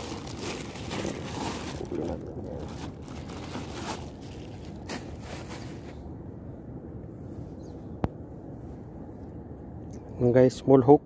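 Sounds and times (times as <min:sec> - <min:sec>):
plastic bags rustling: 0:00.0 - 0:05.9.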